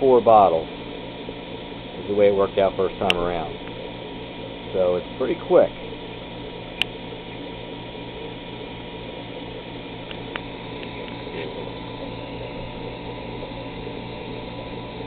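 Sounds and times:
vacuum pump humming: 0:00.0 - 0:15.0
sharp click: 0:06.7 - 0:07.0.

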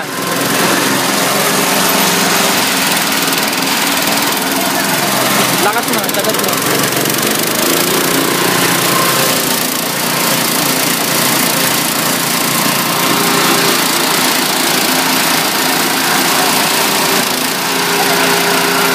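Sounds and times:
petrol engine running shredder: 0:00.0 - 0:18.9.

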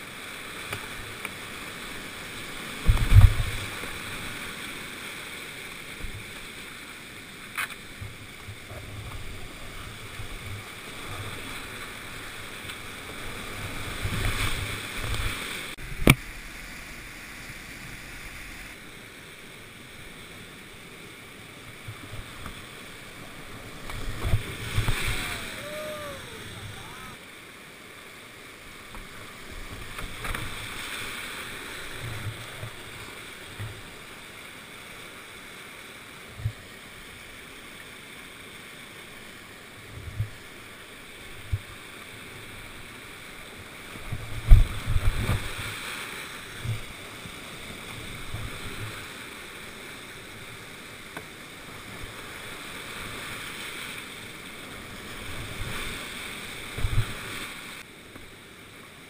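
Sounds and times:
boat and paddle splashes: 0:00.0 - 0:59.0
whitewater rushing: 0:08.4 - 0:35.2.

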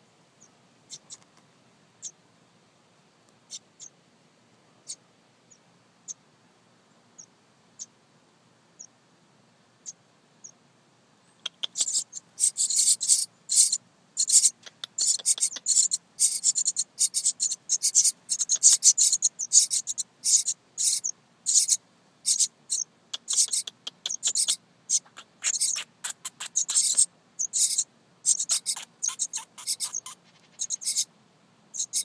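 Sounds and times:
nestling birds begging calls: 0:11.3 - 0:31.1, 0:31.7 - 0:32.0.

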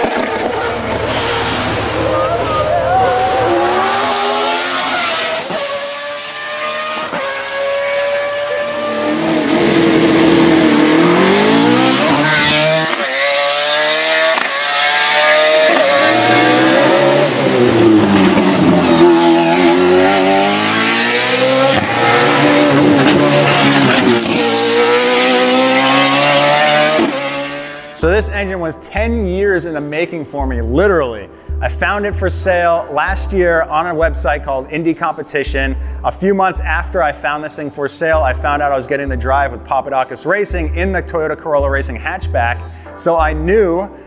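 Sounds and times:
race car engine revving: 0:00.0 - 0:28.6.

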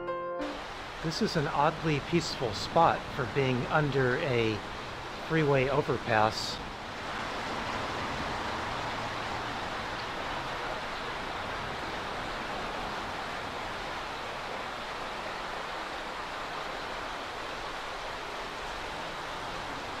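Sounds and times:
creek flowing over gravel: 0:00.6 - 0:20.0
freeway traffic noise: 0:00.7 - 0:20.0.

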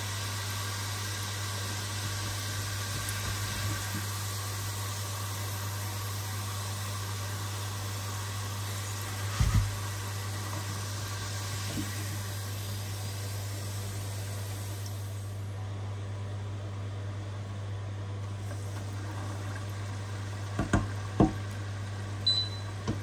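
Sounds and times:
oil sizzling hiss: 0:00.0 - 0:15.5, 0:18.3 - 0:22.2
low steady hum: 0:07.9 - 0:23.0.

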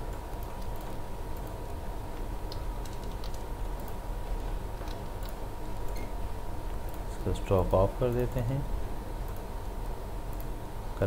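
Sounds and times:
background hum: 0:00.0 - 0:11.0
computer mouse clicks: 0:02.5 - 0:04.0, 0:10.3 - 0:10.5.

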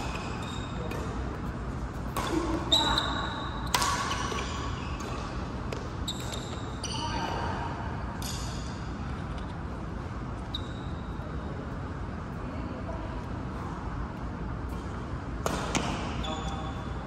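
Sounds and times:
racket hitting shuttlecock: 0:00.0 - 0:06.6, 0:14.7 - 0:16.1
shoes squeaking on court: 0:00.0 - 0:07.5, 0:08.2 - 0:11.5, 0:14.7 - 0:17.0
steady hall hum: 0:00.0 - 0:17.0.

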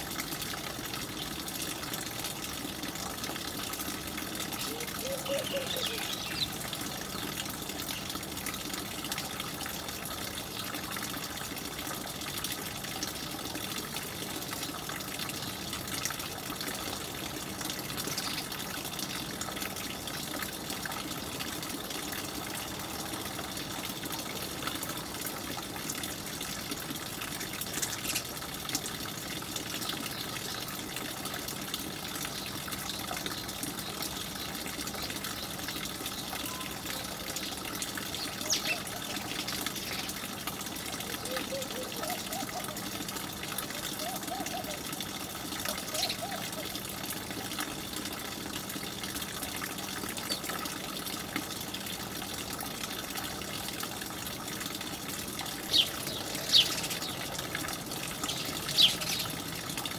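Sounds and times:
sparrows chirping: 0:04.8 - 0:07.4, 0:38.2 - 0:40.1, 0:55.7 - 0:57.3, 0:58.2 - 0:59.4.

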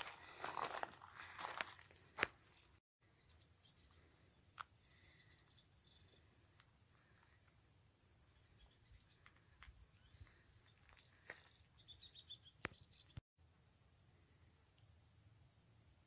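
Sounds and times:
insects trilling: 0:00.3 - 0:16.0
faint bird chirps: 0:02.5 - 0:13.2.

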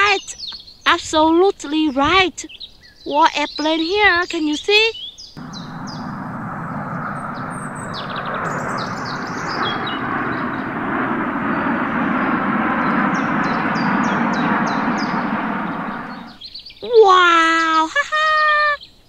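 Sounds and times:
jet aircraft roar: 0:05.4 - 0:16.4.

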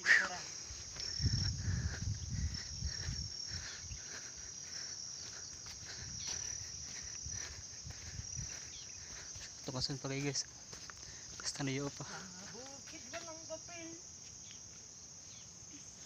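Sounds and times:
insects chirring: 0:00.0 - 0:16.0.

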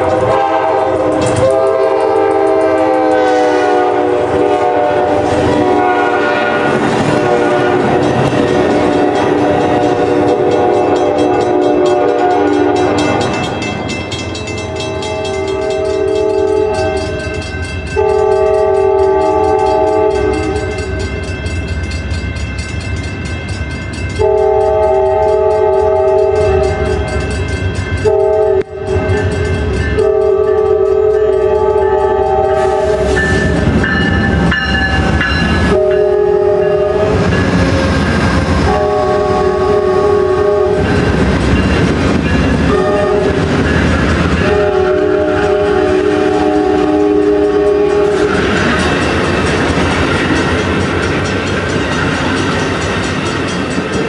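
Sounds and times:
wheels clicking over rail joints: 0:00.0 - 0:03.3, 0:06.6 - 0:36.0, 0:40.8 - 0:54.0
locomotive air horn blasts: 0:00.0 - 0:13.3, 0:14.7 - 0:17.2, 0:17.9 - 0:21.0, 0:24.2 - 0:27.2, 0:28.0 - 0:33.6, 0:35.6 - 0:41.2, 0:42.6 - 0:43.6, 0:44.3 - 0:48.6
locomotive engines running: 0:00.0 - 0:54.0.

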